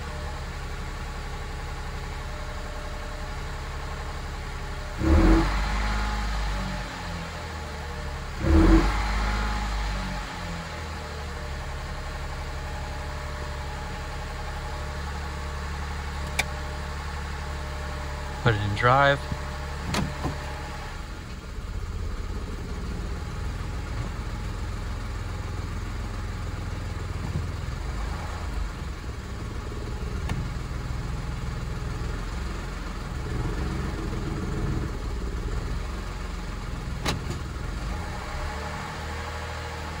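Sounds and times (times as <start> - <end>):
car engine idling: 0.0 - 40.0
click: 16.2 - 16.5.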